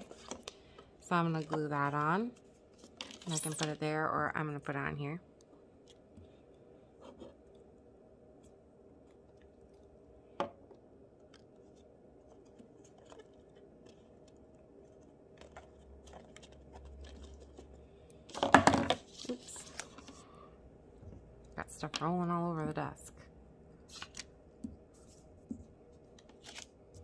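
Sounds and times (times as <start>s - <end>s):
paper rustling: 19.0s - 20.2s, 26.1s - 27.0s.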